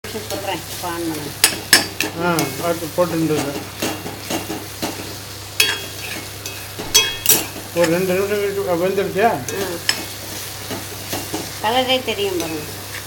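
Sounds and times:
frying hiss: 0:00.0 - 0:13.0
spoon stirring and scraping: 0:01.3 - 0:11.6.

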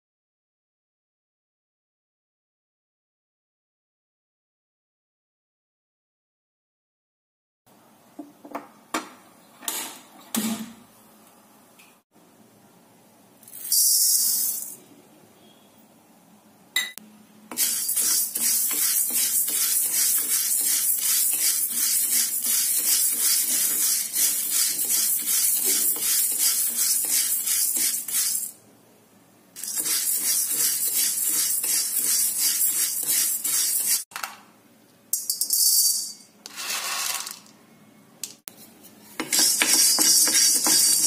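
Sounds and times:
lentils scraping in pan: 0:17.6 - 0:28.5, 0:29.6 - 0:34.1, 0:36.5 - 0:37.4, 0:39.2 - 0:41.0
lentils poured into pan: 0:36.5 - 0:37.5.

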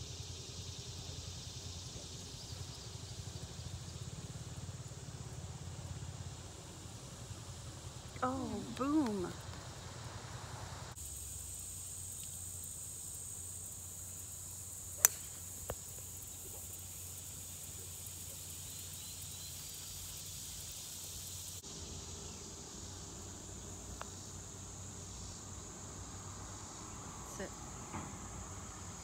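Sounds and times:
high drone of insects: 0:00.0 - 0:29.0
golf club striking ball: 0:15.0 - 0:15.8.

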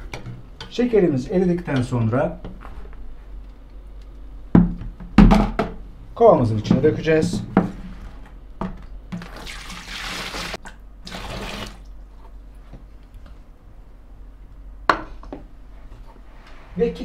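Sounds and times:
water pouring into bucket: 0:09.2 - 0:11.9.

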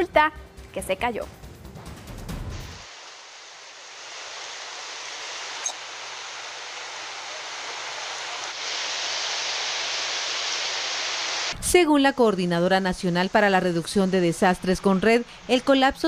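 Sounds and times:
river rushing: 0:02.9 - 0:11.6.

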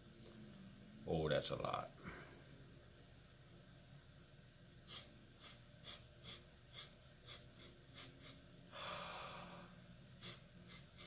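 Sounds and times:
man sniffing snuff: 0:04.9 - 0:08.9, 0:10.2 - 0:11.0.

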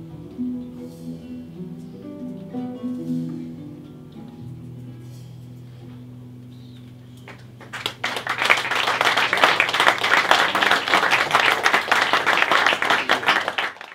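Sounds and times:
audience applause: 0:07.3 - 0:13.9.

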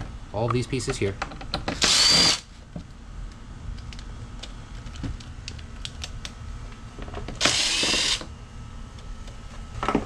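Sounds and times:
cordless drill running: 0:01.8 - 0:02.5, 0:07.4 - 0:08.2.

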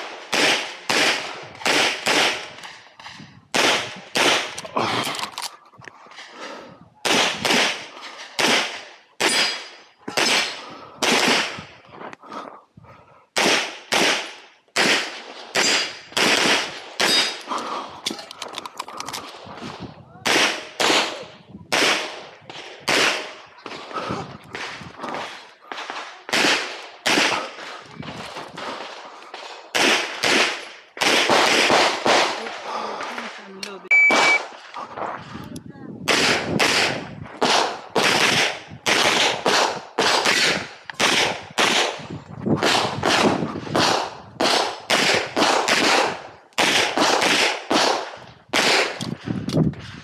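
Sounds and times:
pistol shots with echo: 0:00.0 - 0:04.6, 0:07.0 - 0:11.6, 0:13.4 - 0:17.5, 0:20.2 - 0:27.7, 0:28.6 - 0:33.4, 0:34.1 - 0:34.6, 0:36.1 - 0:42.0, 0:42.6 - 0:49.1.

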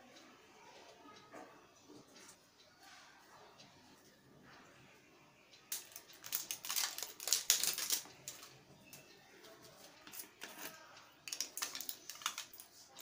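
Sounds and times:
plastic bottles clicking and rattling: 0:05.7 - 0:08.6, 0:10.0 - 0:13.0.

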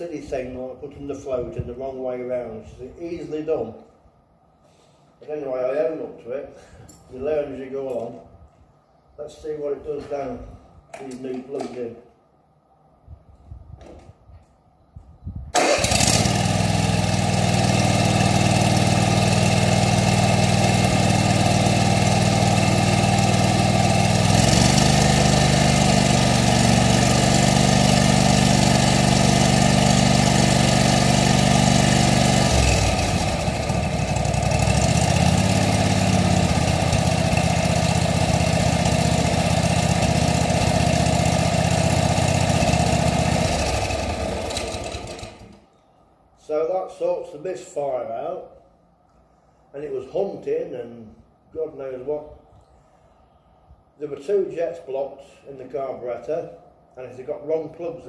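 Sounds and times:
engine starter cranking: 0:15.5 - 0:16.9
mower engine running: 0:15.6 - 0:45.6.

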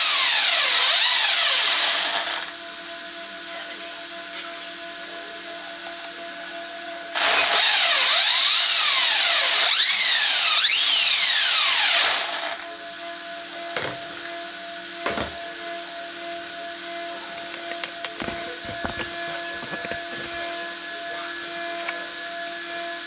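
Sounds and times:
electric motor whine: 0:00.0 - 0:23.0.

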